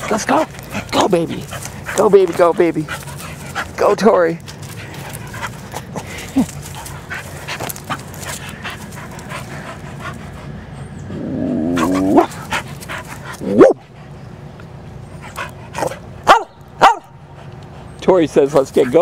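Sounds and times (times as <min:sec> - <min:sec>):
dog whining: 0:11.0 - 0:12.4, 0:13.4 - 0:13.8
dog yelping: 0:11.0 - 0:12.4, 0:13.4 - 0:13.9, 0:15.8 - 0:17.1.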